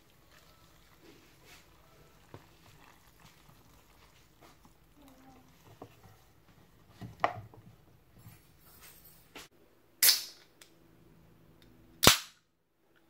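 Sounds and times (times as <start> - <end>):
sharp crack: 10.0 - 10.7, 12.0 - 12.5.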